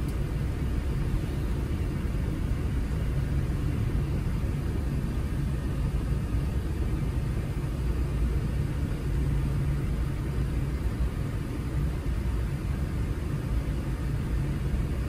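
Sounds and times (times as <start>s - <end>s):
aircraft cabin low rumble: 0.0s - 15.0s.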